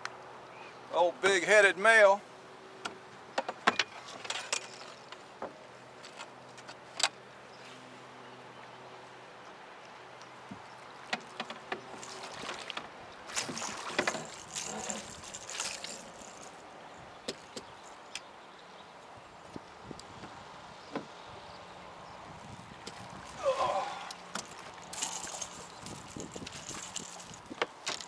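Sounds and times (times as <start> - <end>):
knocks and clicks in boat: 10.5 - 16.4
water splashing: 11.9 - 16.6.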